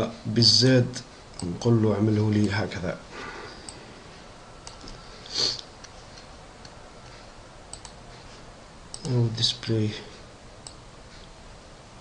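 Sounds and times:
person sniffing: 5.2s - 5.7s
faint mouse clicks: 7.7s - 8.0s, 8.9s - 9.2s.

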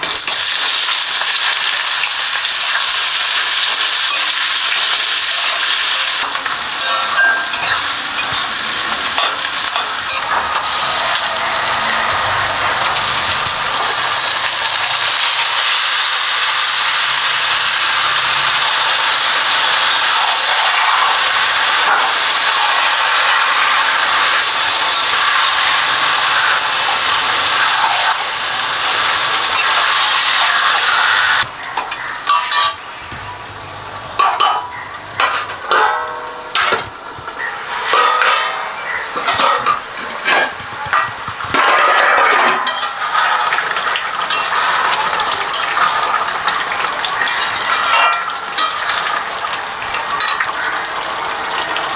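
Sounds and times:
food sizzling in hot oil: 0.0s - 51.9s
metal spatula scraping pan: 6.2s - 12.5s, 37.7s - 43.6s, 44.3s - 46.1s, 47.2s - 49.1s.

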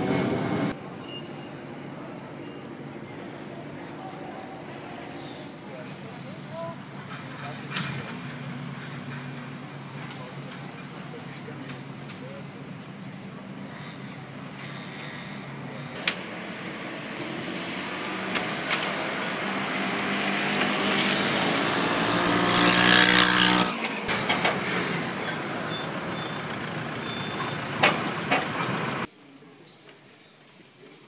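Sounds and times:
heavy vehicle engine passing: 6.8s - 29.1s.

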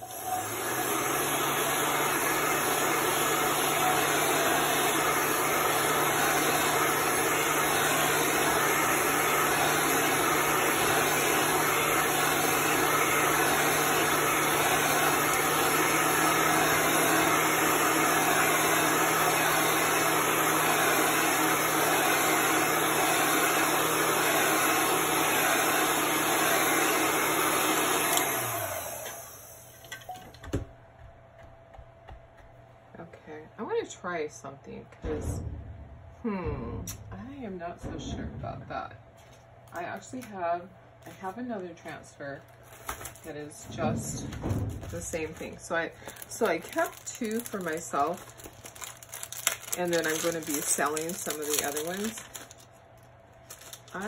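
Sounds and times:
hot-air dryer blowing: 0.0s - 30.6s, 42.8s - 52.6s, 53.6s - 54.0s.

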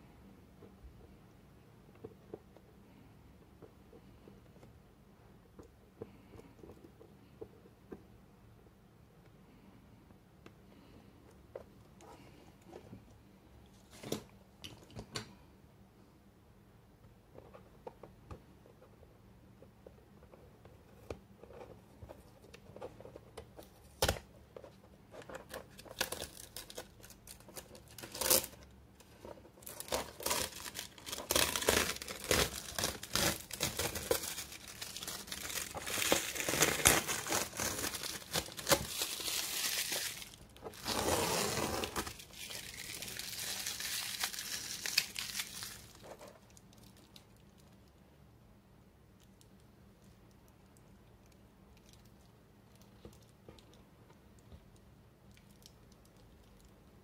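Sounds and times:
tape tearing: 25.7s - 28.6s, 29.6s - 46.0s
masking tape peeling: 28.0s - 28.5s, 29.8s - 45.7s
foil sheet crinkling: 29.6s - 46.0s.

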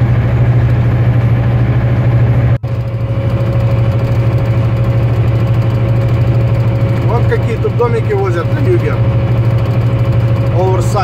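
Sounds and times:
mid-pitched hum: 0.0s - 11.0s
truck engine and road drone: 0.0s - 11.0s.

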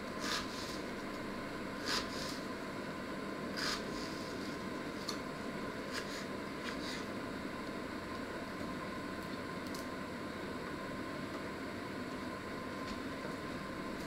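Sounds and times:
knife cutting onion on wooden board: 0.2s - 0.8s, 1.8s - 2.5s, 3.5s - 4.2s.

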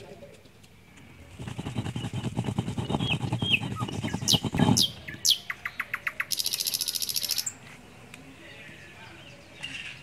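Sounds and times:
birds whistling and trilling: 0.8s - 7.8s, 8.4s - 10.0s
stone roller grinding chillies: 1.3s - 5.0s.

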